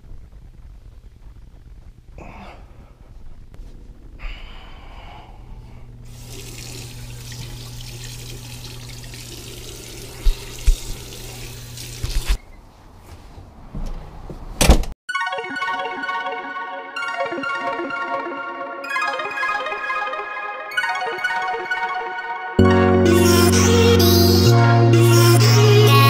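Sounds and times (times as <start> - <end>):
low hum: 0.0 - 12.4
sink tap running: 6.1 - 12.4.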